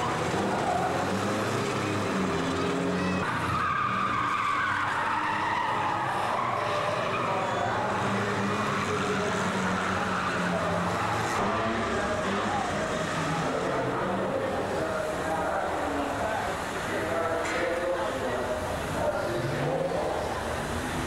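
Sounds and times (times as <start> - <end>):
tyres squealing: 0.0 - 11.5
racing car engines running hard: 0.0 - 21.0.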